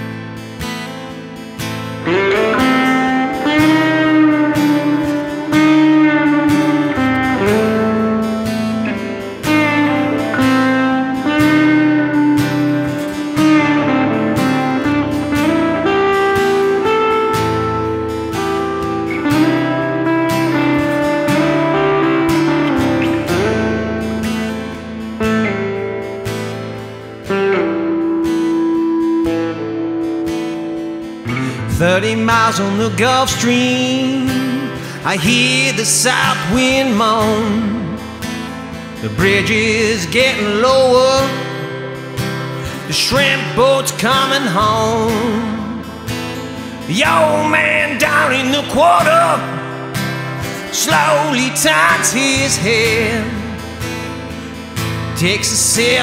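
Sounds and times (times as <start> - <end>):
acoustic guitar strumming: 0.0 - 56.0
sliding sustained lead notes: 1.9 - 56.0.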